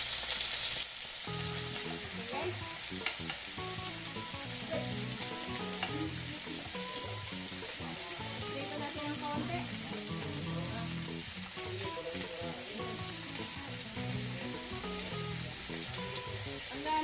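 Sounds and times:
chicken sizzling in a pan: 0.0 - 17.0
tongs clicking against a pan: 2.8 - 8.4.

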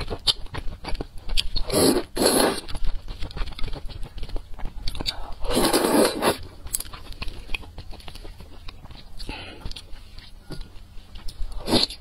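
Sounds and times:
chewing with wet clicks: 0.0 - 12.0
slurping noodles: 1.6 - 2.8, 5.4 - 6.5.

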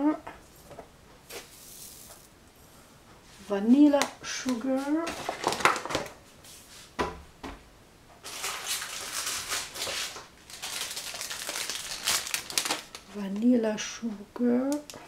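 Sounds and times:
paper rustling and sugar pouring: 1.3 - 2.3, 8.2 - 13.2.

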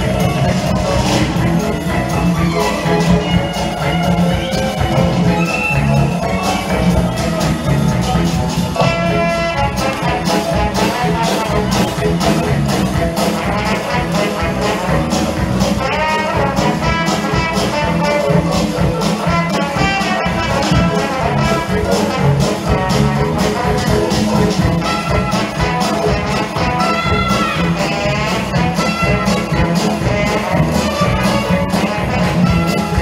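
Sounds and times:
upbeat brass show music: 0.0 - 33.0.

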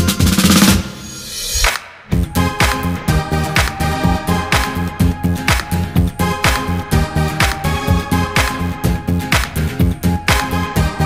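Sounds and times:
background music with drums: 0.0 - 1.1, 1.7 - 11.0
drum roll: 0.0 - 2.2
rising whoosh: 0.8 - 2.1.

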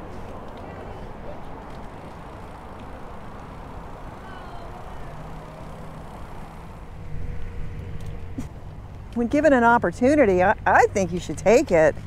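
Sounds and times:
tyres rolling on pavement: 0.0 - 12.0.

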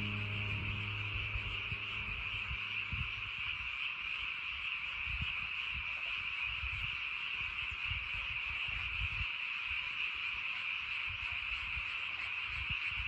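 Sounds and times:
frog chorus: 0.0 - 13.0.

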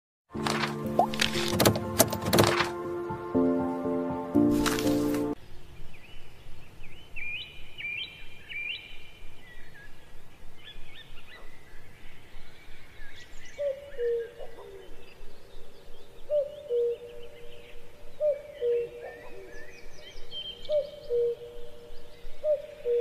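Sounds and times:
small birds chirping: 5.3 - 23.0.

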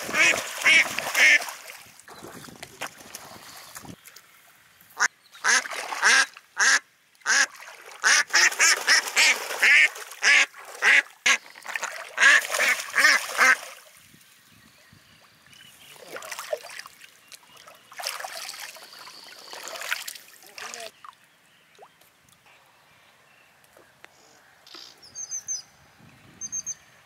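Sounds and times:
ducks quacking: 0.0 - 1.5, 5.0 - 11.4, 12.2 - 13.7.

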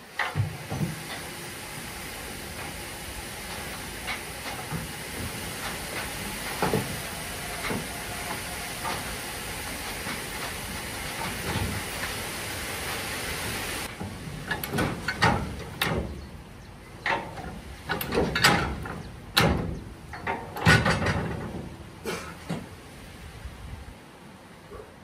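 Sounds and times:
sand pouring with rushing hiss: 0.0 - 14.5.

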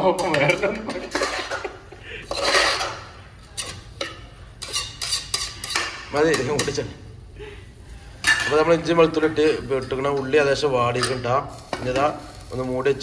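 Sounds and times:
spoon scraping pot: 0.0 - 6.8
spoon clinking against metal pot: 3.6 - 6.8.

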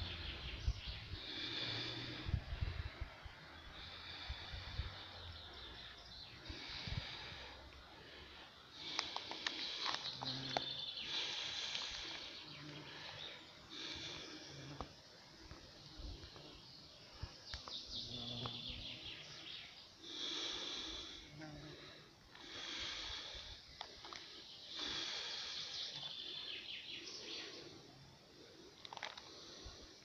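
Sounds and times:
faint outdoor hum: 0.0 - 30.0
songbirds trilling: 0.0 - 30.0
wind rumble on microphone: 2.2 - 3.3.

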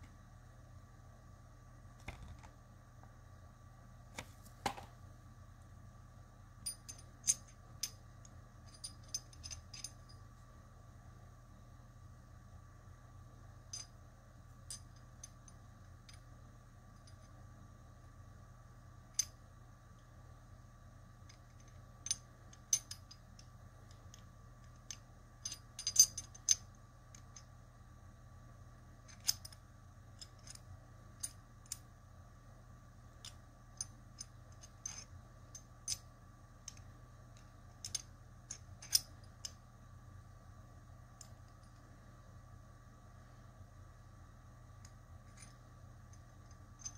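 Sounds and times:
metal puzzle pieces clicking: 33.2 - 35.1, 36.7 - 39.6.

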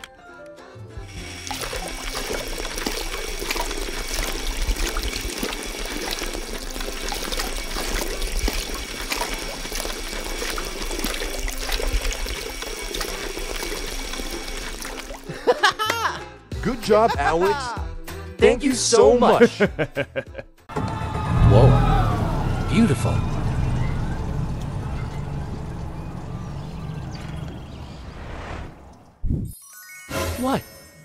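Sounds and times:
water pouring and splashing: 1.1 - 15.5.

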